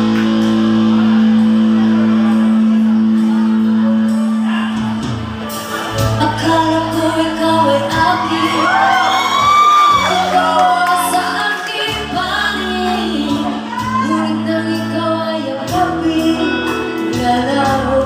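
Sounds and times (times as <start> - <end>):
live band playing: 0.0 - 18.0
woman singing into a microphone: 6.0 - 18.0.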